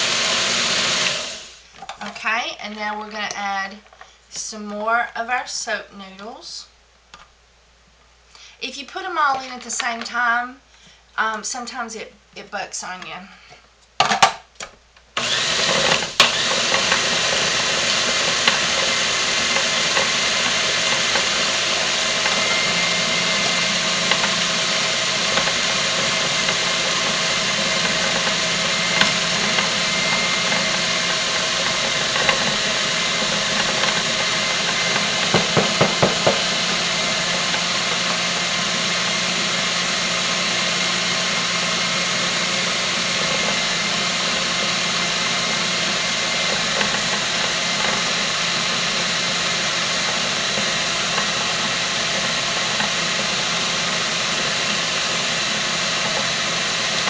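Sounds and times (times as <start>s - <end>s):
food processor motor grinding: 0.0s - 1.6s, 15.2s - 57.0s.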